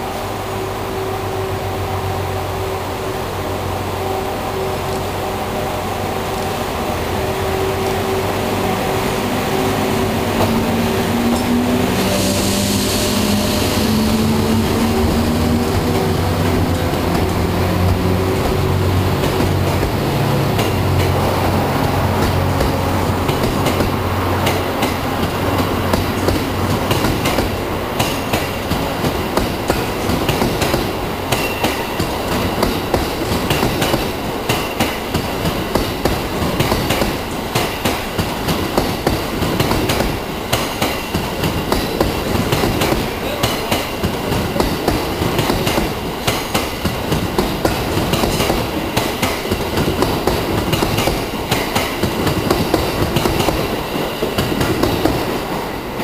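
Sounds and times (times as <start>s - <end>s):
train wheels clickety-clack: 8.5s - 56.0s.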